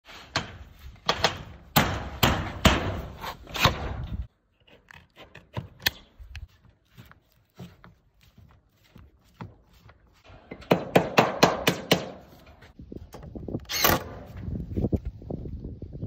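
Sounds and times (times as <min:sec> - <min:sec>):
knocks on metal roof panel: 0:10.6 - 0:12.2.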